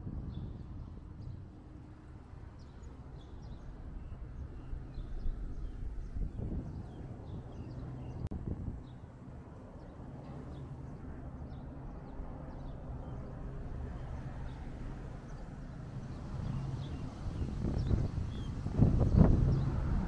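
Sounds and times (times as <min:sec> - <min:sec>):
steady low outdoor rumble: 0:00.0 - 0:20.0
small birds chirping: 0:11.4 - 0:19.9.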